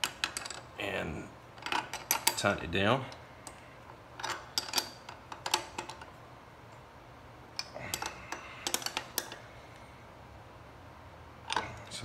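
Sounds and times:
wrench clicking on a nut: 7.6s - 9.4s.

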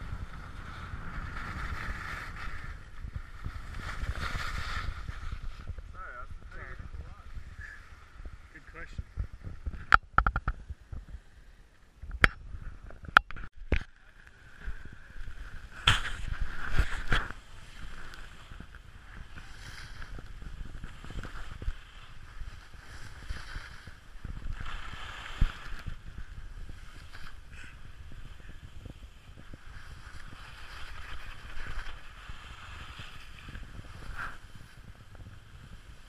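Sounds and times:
skis scraping over snow: 0.0s - 8.8s, 14.3s - 36.0s
wind on camera: 0.0s - 36.0s.

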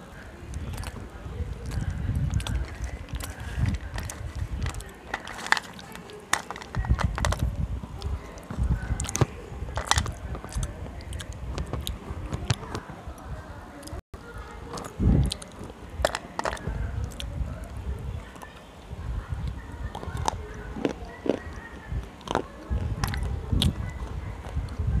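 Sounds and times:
microphone handling rumble: 0.4s - 5.6s, 6.6s - 13.7s, 14.6s - 18.3s, 21.4s - 25.0s
slate pencils snapping and crunching: 1.6s - 12.9s, 14.7s - 17.3s, 19.9s - 24.8s
pieces clattering on steel plate: 4.0s - 7.4s.

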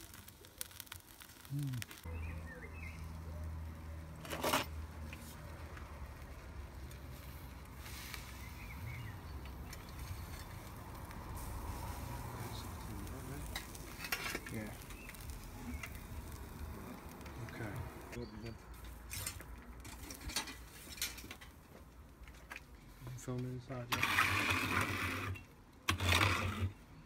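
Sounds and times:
steak sizzling: 0.0s - 18.2s.

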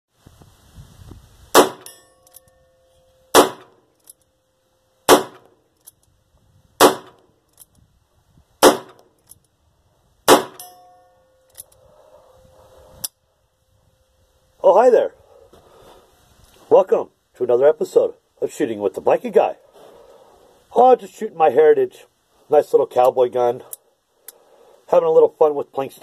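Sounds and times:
faint ringing: 1.8s - 6.4s, 10.6s - 14.6s.

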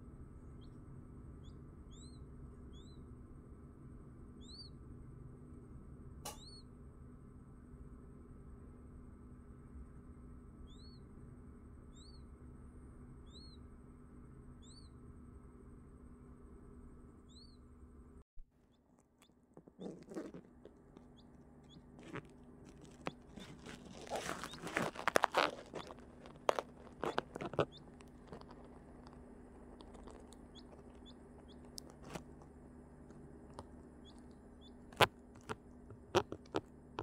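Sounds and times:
low steady hum: 0.0s - 37.0s
tissue paper crackling: 22.7s - 27.4s
chick peeping: 22.8s - 32.2s.

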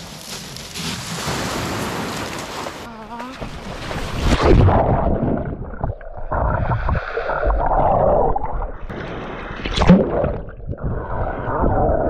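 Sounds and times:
water splashing: 1.1s - 12.0s
underwater bubbling and gurgling: 3.4s - 12.0s.

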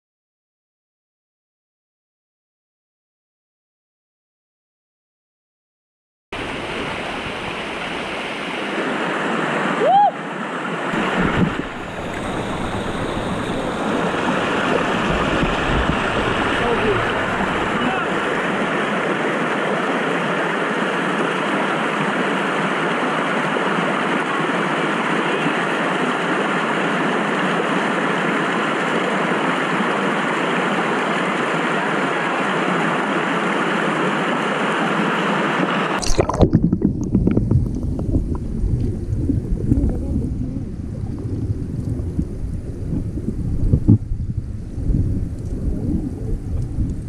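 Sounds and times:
stream rushing over rocks: 6.4s - 38.7s
muffled underwater bumps: 11.0s - 17.9s, 36.0s - 47.0s.

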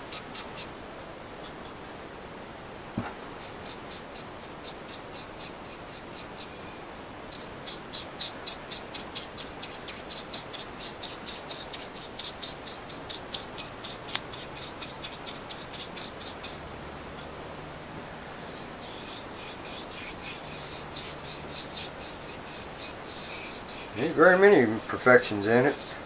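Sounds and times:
bristle brush scrubbing wood: 18.8s - 26.0s.

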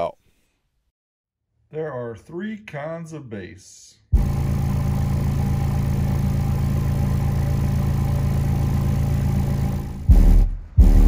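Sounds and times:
buzzy low bass note: 4.2s - 11.0s.

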